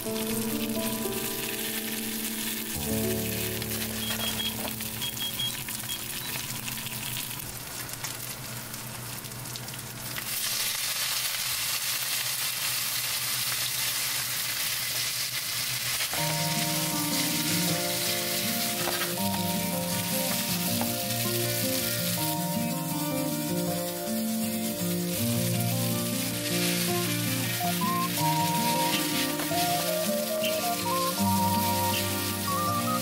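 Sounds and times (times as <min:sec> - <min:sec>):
background music: 0:00.0 - 0:05.6, 0:16.2 - 0:33.0
fish sizzling in a frying pan: 0:00.0 - 0:33.0.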